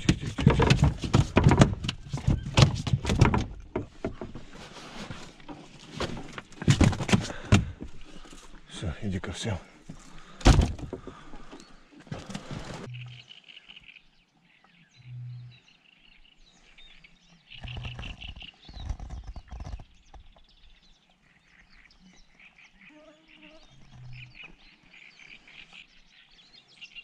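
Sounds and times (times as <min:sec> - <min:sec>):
knocks and clatter: 0:00.0 - 0:04.5, 0:05.9 - 0:07.9.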